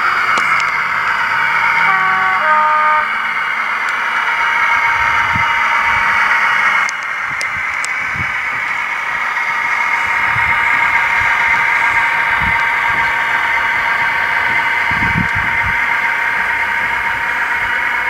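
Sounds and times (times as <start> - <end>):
hissy diesel engine sound: 0.0 - 18.0
two-tone train horn: 1.7 - 3.3.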